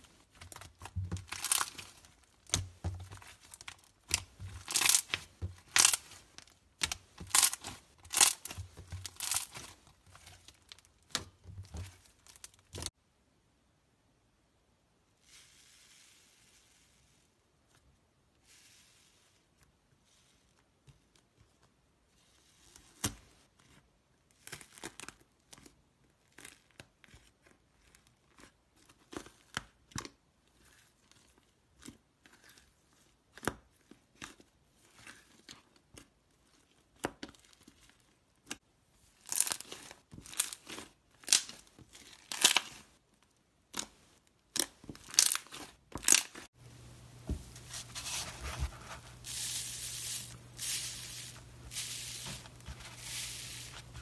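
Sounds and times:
dried slime crackling: 0.0 - 12.9
low hum with soft hiss: 46.6 - 54.0.

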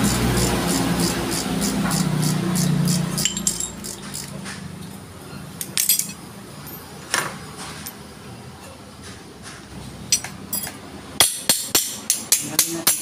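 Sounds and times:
metal parts clinking: 3.2 - 4.4, 5.6 - 6.9, 10.1 - 10.8.

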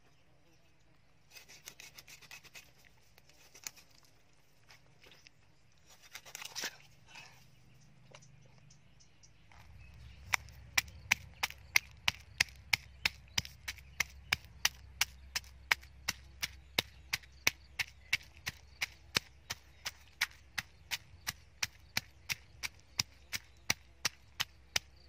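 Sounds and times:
cleaver scraping on wooden board: 1.3 - 4.0.

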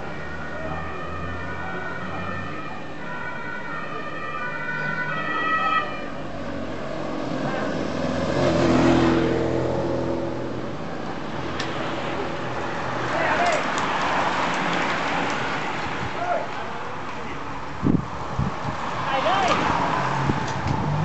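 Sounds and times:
motor vehicle passing close: 6.3 - 10.6, 19.4 - 21.0.

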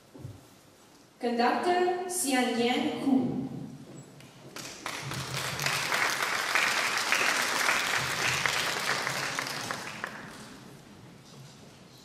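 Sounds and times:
audience applauding: 4.6 - 10.7.

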